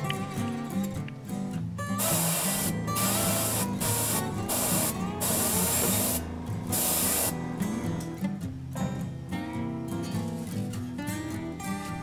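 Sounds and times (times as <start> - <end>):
airbrush spraying hiss: 2.0 - 7.4.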